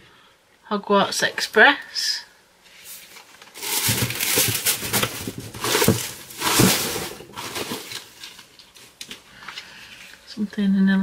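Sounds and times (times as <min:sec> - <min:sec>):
packaging rustling and crinkling: 0:02.8 - 0:10.2.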